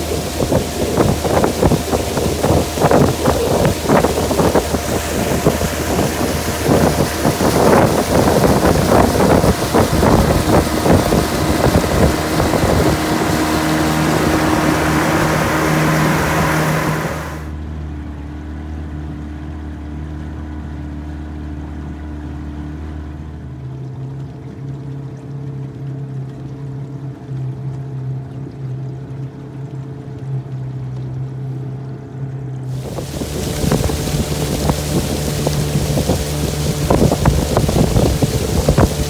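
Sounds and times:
wind noise on microphone: 0.0s - 17.5s, 32.7s - 39.0s
water rushing: 0.0s - 17.6s, 27.8s - 39.0s
outboard motor running: 0.0s - 39.0s.

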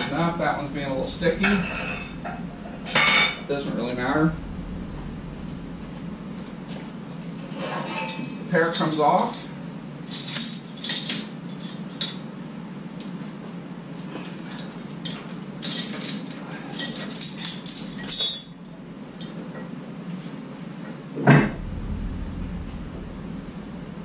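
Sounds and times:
low hum: 0.0s - 10.0s, 21.3s - 24.0s
loud metal knock: 0.4s - 7.4s.

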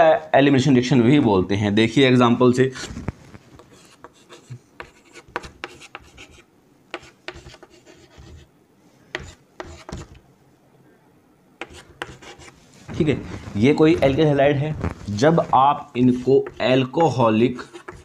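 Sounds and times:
chalk scratching on chalkboard: 3.6s - 8.5s, 9.1s - 10.2s, 11.6s - 12.6s, 14.8s - 18.0s.

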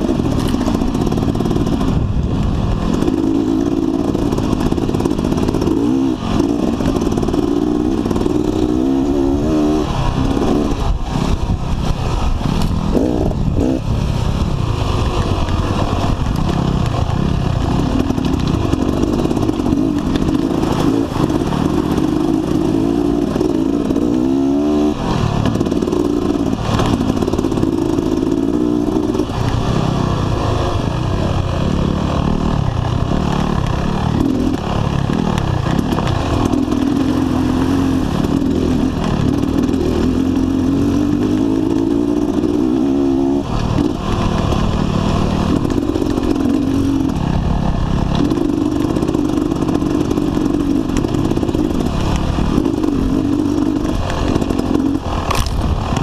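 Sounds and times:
dirt bike engine revving: 0.0s - 56.0s
bike rattling over rocks: 43.4s - 56.0s.

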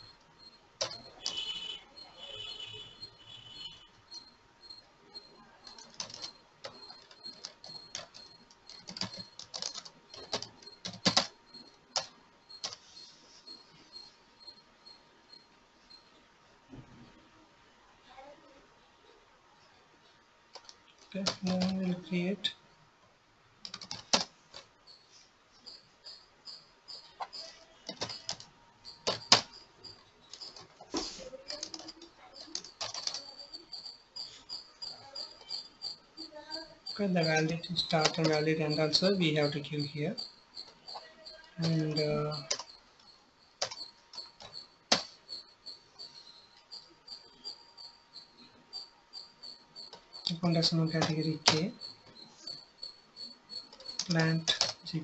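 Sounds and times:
keyboard typing: 0.0s - 16.0s, 20.5s - 22.5s, 23.6s - 55.0s
faint high-pitched chirp: 0.0s - 17.1s, 24.9s - 55.0s.

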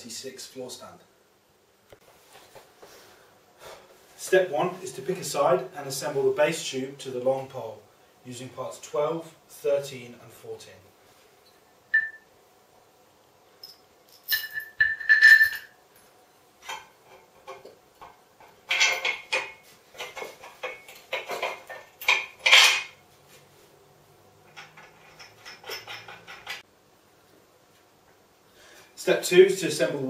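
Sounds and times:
metal ringing: 11.4s - 12.3s, 13.6s - 15.8s
metal hardware clinking: 13.6s - 15.8s, 16.6s - 23.0s, 24.4s - 26.6s.

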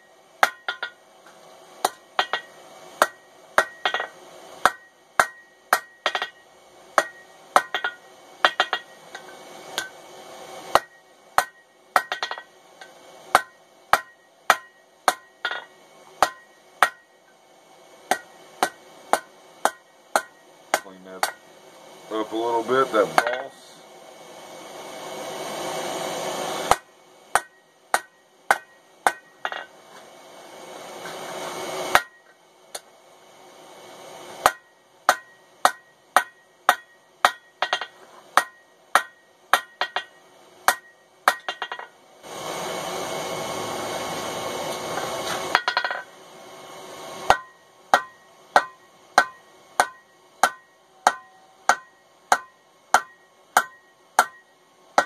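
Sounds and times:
hammer striking steel on anvil: 0.0s - 10.0s, 10.7s - 17.2s, 18.1s - 21.5s, 22.2s - 23.6s, 26.6s - 29.8s, 31.9s - 32.9s, 34.4s - 42.0s, 45.0s - 46.1s, 47.3s - 55.0s.

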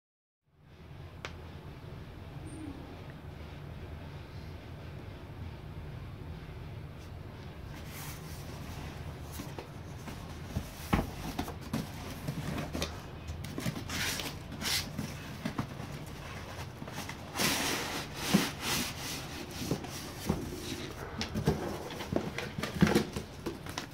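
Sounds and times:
cardboard rustling: 7.7s - 23.9s
cardboard flaps scraping: 7.8s - 23.9s.

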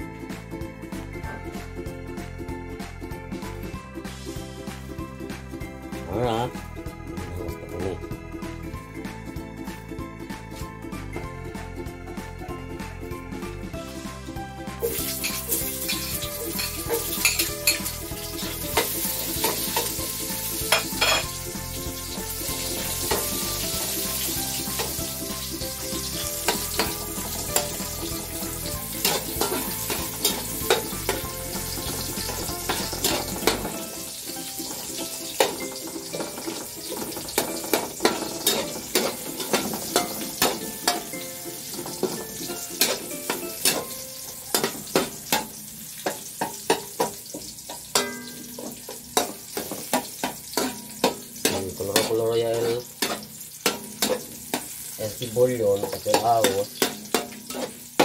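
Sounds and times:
food sizzling in hot oil: 13.8s - 58.0s
metal spatula scraping wok: 14.8s - 21.4s, 25.7s - 55.0s, 56.0s - 58.0s.

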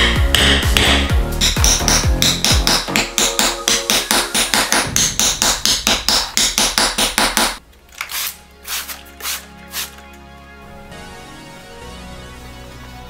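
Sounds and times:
background music: 0.0s - 13.0s
mallet striking a setter: 0.3s - 7.6s.

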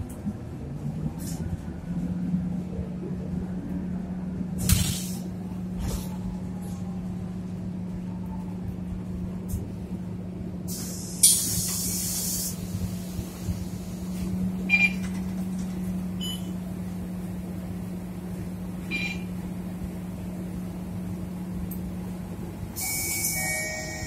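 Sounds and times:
bus engine hum: 0.0s - 24.0s
compressed air hiss: 10.7s - 14.1s.

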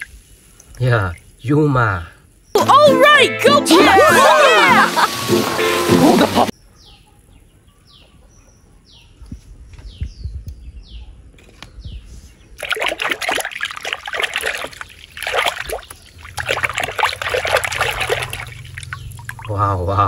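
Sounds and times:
water splashing in a plastic tub: 12.6s - 19.8s.

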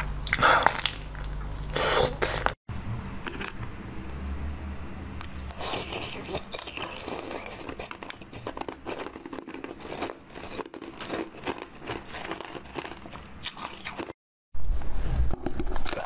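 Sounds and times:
crunching and chewing candy: 0.0s - 2.6s, 5.2s - 14.2s.

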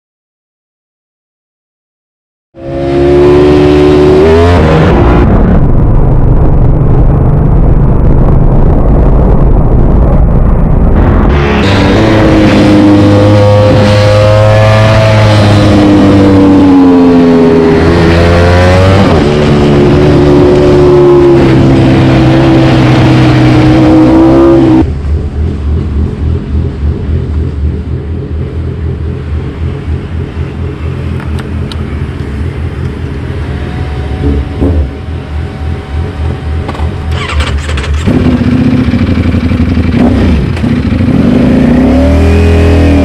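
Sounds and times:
motorcycle engine revving: 2.6s - 6.1s, 7.6s - 43.0s
motorcycle idling unevenly: 24.9s - 41.1s.

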